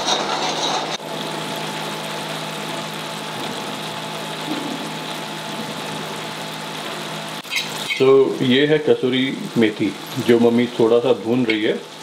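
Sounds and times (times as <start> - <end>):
constant mechanical hum: 0.0 - 12.0
masala sizzling in oil: 0.0 - 12.0.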